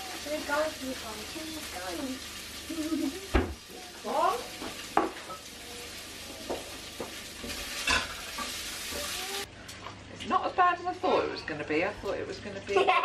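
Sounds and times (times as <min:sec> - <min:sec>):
food sizzling in a pan: 0:00.0 - 0:13.0.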